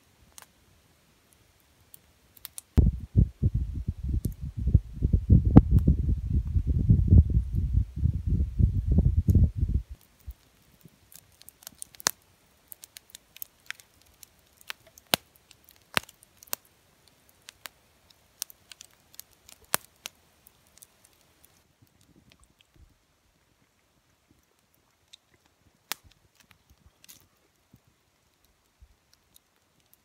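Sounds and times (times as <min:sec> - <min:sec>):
campfire crackling: 0:00.0 - 0:30.0.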